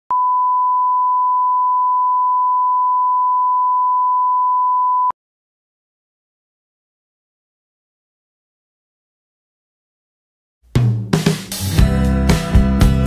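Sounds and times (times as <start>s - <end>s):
steady test tone beep: 0.1s - 5.2s.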